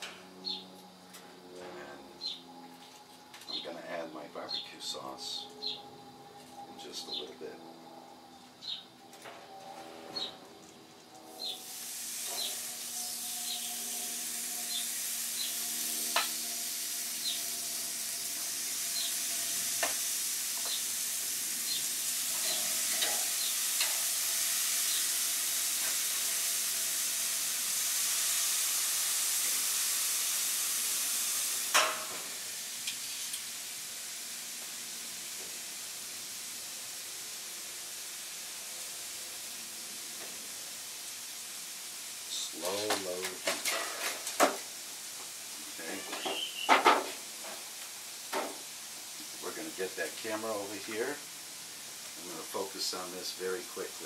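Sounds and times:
chicken sizzling on grill: 0.0 - 0.8, 11.0 - 54.0
grill lid clanking shut: 31.7 - 32.3, 43.4 - 44.6.

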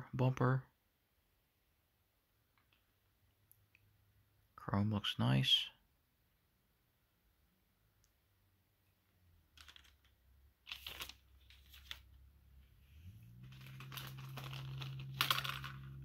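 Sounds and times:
plastic bag crinkling: 13.4 - 16.0.

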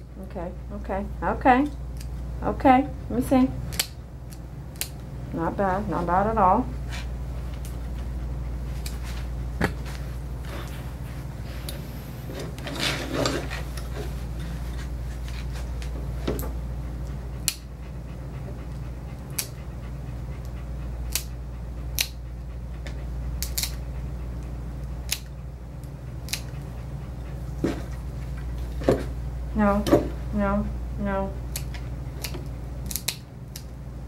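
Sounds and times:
steady low hum: 0.0 - 34.0
dog nail clippers clicking: 3.7 - 5.0, 17.4 - 17.7, 19.3 - 19.6, 21.1 - 21.3, 22.0 - 22.2, 23.4 - 23.8, 25.0 - 26.6, 31.5 - 33.7.

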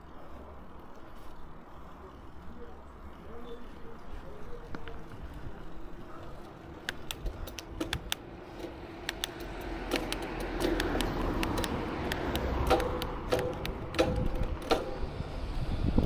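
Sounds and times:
bicycle clicks and rattles: 0.0 - 16.0
wind rumble on microphone: 13.6 - 16.0.

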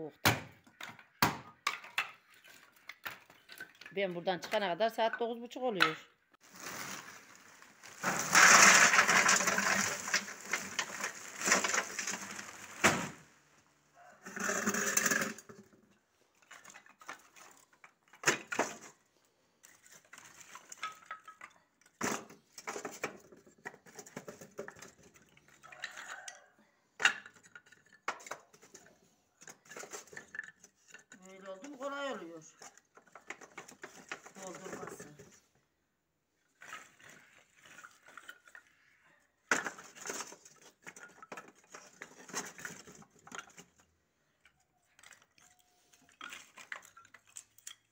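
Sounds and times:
kindling sticks clattering into bucket: 5.8 - 13.2.

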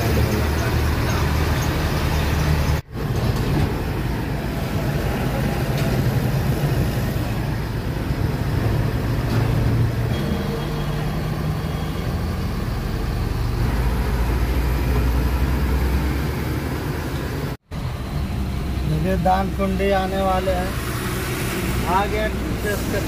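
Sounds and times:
tyre and road noise: 0.0 - 23.0
diesel truck engine running: 10.8 - 23.0.

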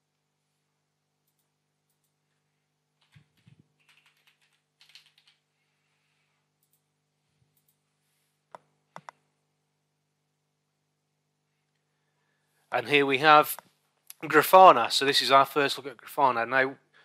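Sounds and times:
typing on computer keyboard: 3.0 - 5.4.

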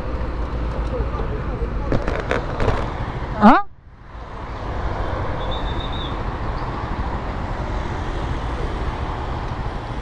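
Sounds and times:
wind and road noise: 0.0 - 10.0.

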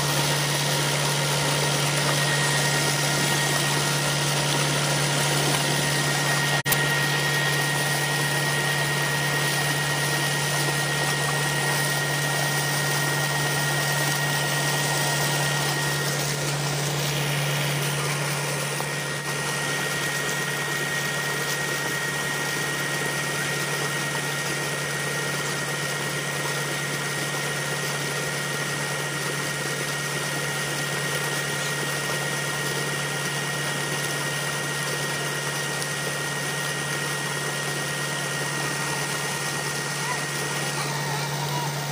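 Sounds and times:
water gushing and splashing: 0.0 - 41.9.

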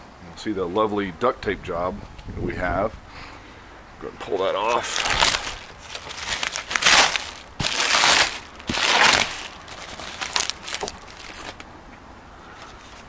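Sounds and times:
plastic sheeting crinkling: 4.4 - 11.6, 12.6 - 13.0
plastic rustling: 4.4 - 11.7, 12.5 - 13.0.

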